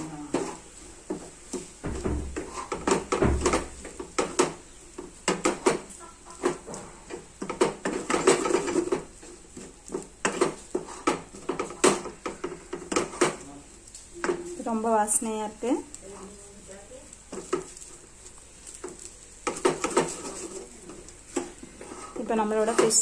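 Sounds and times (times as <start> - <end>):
dull thumps: 0.3 - 13.4
spatula scraping a steel pan: 19.5 - 23.0.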